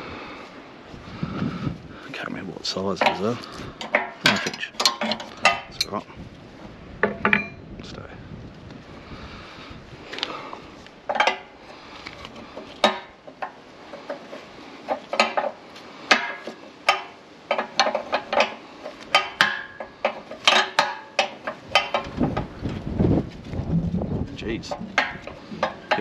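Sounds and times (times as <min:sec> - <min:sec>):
spanner clinking on bolts: 0:03.0 - 0:06.0, 0:14.9 - 0:22.2.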